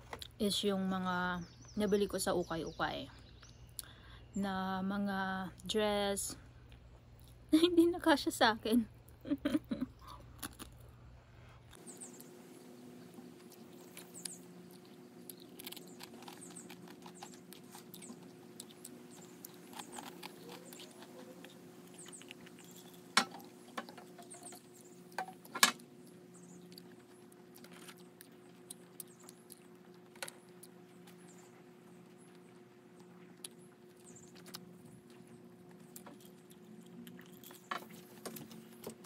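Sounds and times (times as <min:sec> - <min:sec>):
low hum: 0:00.0 - 0:39.0
small clicks and crackles: 0:13.4 - 0:39.0.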